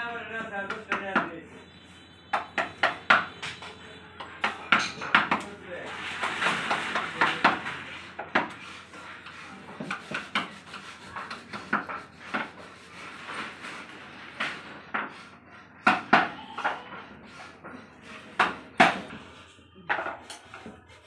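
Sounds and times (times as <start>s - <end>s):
scraping on wood: 2.3s - 21.0s.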